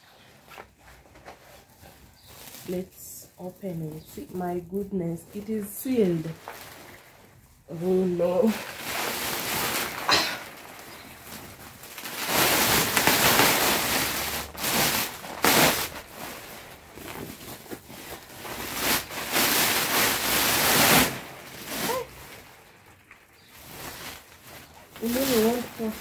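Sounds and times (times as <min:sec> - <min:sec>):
plastic sack rustling: 0:00.0 - 0:26.0.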